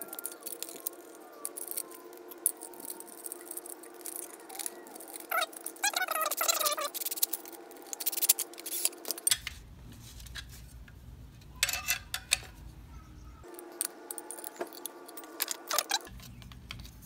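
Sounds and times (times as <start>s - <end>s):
small metal hardware clinking: 11.6s - 12.5s, 13.5s - 16.1s.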